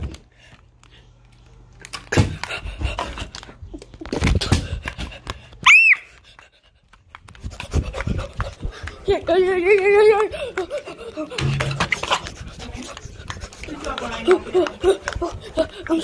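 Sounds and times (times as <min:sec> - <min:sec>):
rapid breathy voice noise: 0:07.4 - 0:16.0.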